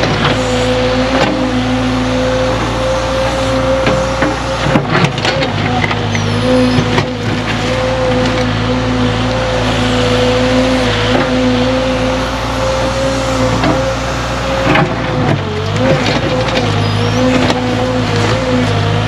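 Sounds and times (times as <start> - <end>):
excavator diesel engine running: 0.0 - 19.0
hydraulic whine: 0.0 - 19.0.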